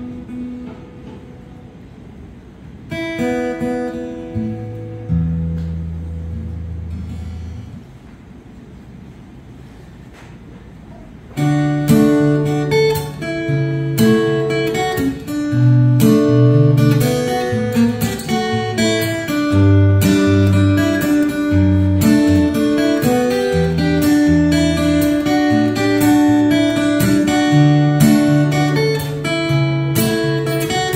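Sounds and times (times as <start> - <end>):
acoustic guitar melody: 0.0 - 30.9.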